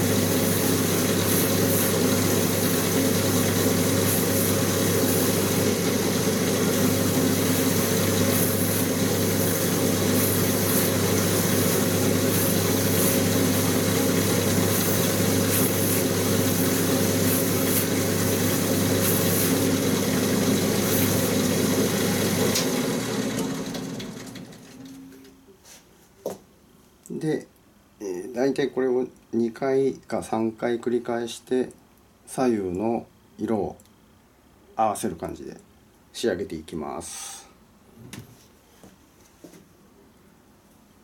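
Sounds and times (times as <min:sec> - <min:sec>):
rotating brush wheel buffing: 0:00.0 - 0:23.3.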